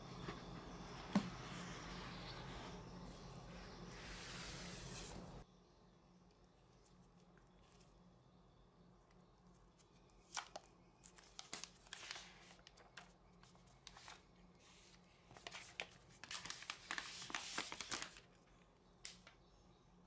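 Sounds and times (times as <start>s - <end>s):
packaging crinkling and rustling: 15.3s - 18.4s.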